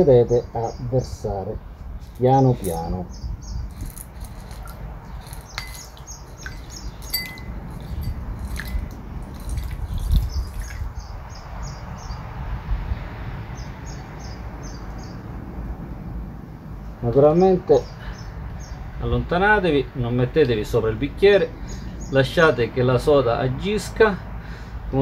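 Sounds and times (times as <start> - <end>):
flakes clicking against glass: 3.7 - 11.0
short glassy rings: 3.8 - 10.9.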